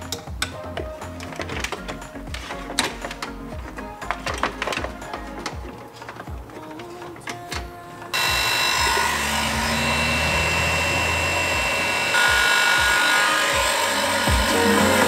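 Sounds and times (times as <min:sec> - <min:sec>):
heat gun fan blowing: 0:08.1 - 0:15.0.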